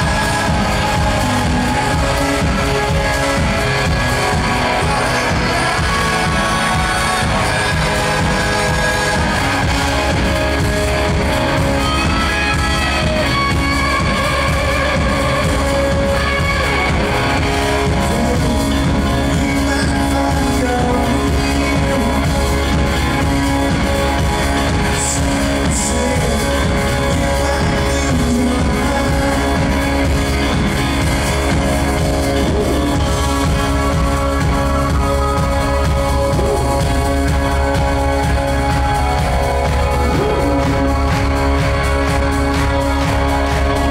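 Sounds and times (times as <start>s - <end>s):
live rock band playing: 0.0s - 43.9s.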